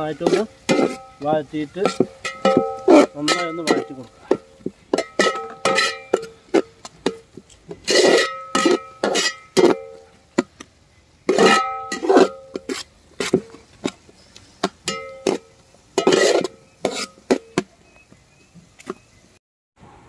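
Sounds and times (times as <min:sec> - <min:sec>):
ladle scraping swishes: 0:00.0 - 0:10.0, 0:11.3 - 0:17.6
metal ladle knocking on pot: 0:00.2 - 0:06.4.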